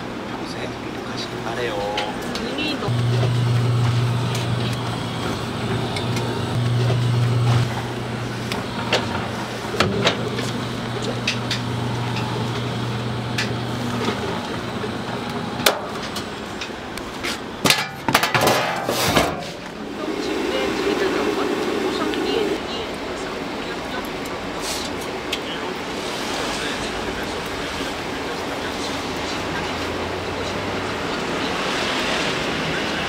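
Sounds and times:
low machine hum: 2.8 - 16.6, 19.5 - 22.8.

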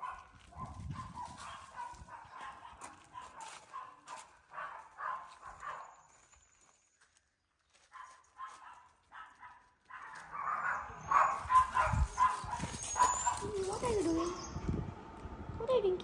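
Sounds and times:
dog barking: 0.0 - 6.0, 7.9 - 14.4.

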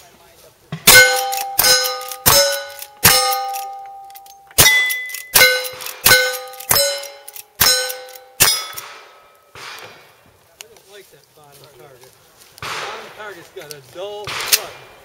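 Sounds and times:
rifle shots: 0.8 - 4.0, 4.6 - 10.1, 12.6 - 13.4, 14.2 - 15.0
steel plate clanging: 0.8 - 10.0.

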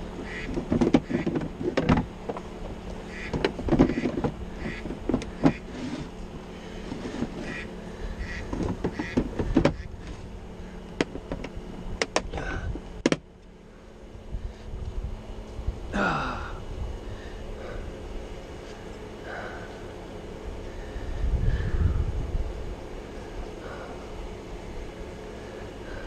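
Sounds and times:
steady low hum: 0.0 - 26.0
plastic vacuum knocking and clunking: 0.6 - 2.4, 3.3 - 5.6, 8.5 - 9.8, 13.0 - 13.2.

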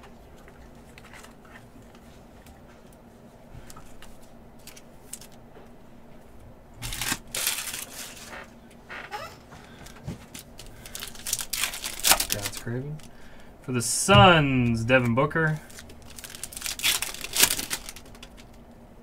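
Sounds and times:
foil packs crinkling: 3.9 - 5.4, 6.8 - 9.0, 9.6 - 13.5, 14.6 - 18.6.

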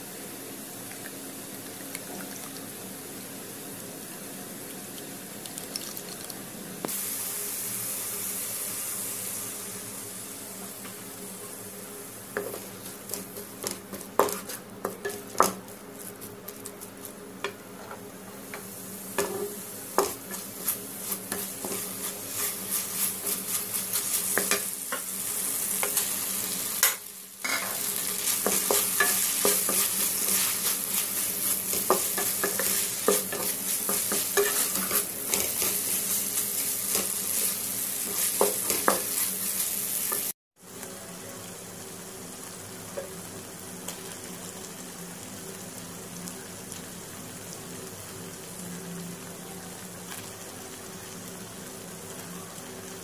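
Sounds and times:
vegetables sizzling in oil: 0.0 - 53.0
spatula stirring and scraping: 12.4 - 17.2, 19.2 - 25.1, 26.8 - 40.3.

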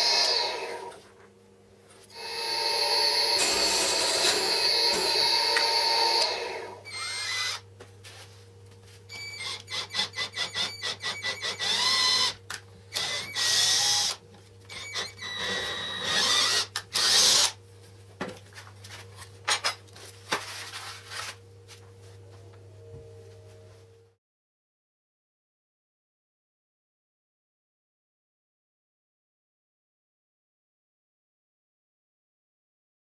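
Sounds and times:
drill press boring into wood: 3.1 - 7.6, 9.4 - 14.2, 14.8 - 17.6
cordless drill driving screws: 6.9 - 7.6, 9.4 - 17.6.

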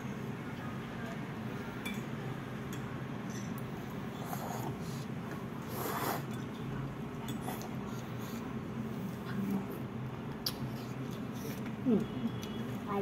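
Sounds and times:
low room hum: 0.0 - 13.0
mouth noises while eating: 3.6 - 12.8
breathy noodle slurp: 4.1 - 6.4.

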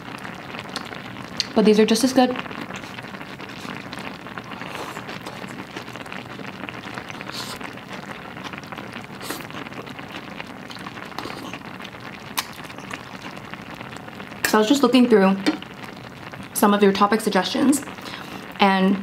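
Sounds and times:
soup simmering in pot: 0.0 - 18.6
person eating noodles: 2.6 - 6.4, 7.0 - 7.7, 8.4 - 11.7.

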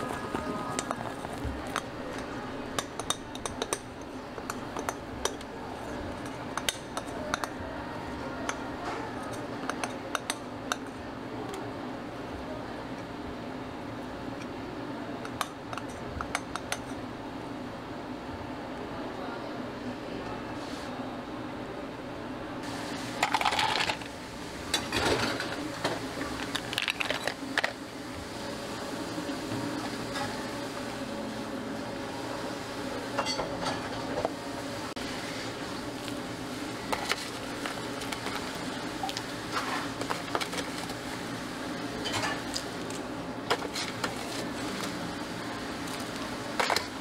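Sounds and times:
utensils clinking against dishes: 0.0 - 7.6, 8.4 - 11.0, 15.2 - 17.0, 24.7 - 27.8, 33.1 - 34.2, 42.0 - 44.9, 46.6 - 47.0
low background hum: 0.0 - 47.0
ice cubes clinking in plastic cup: 23.2 - 24.1, 26.4 - 27.7.

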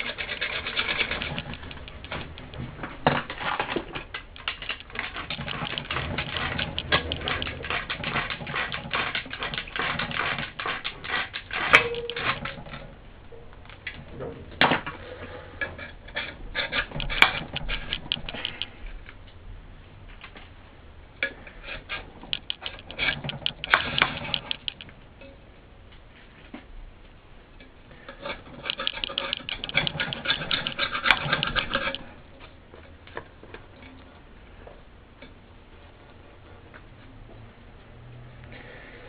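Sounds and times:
scraper rasping on foam: 0.0 - 1.6, 5.7 - 12.5.

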